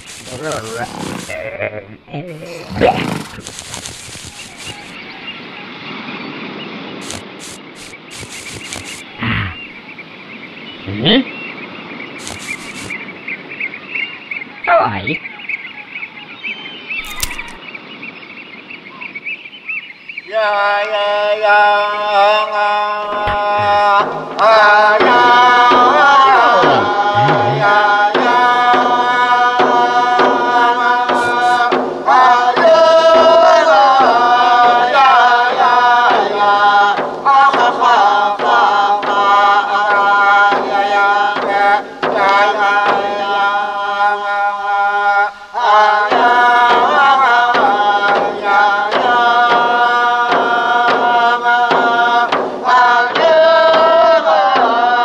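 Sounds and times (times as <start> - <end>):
hand drum percussion: 27.2 - 27.8.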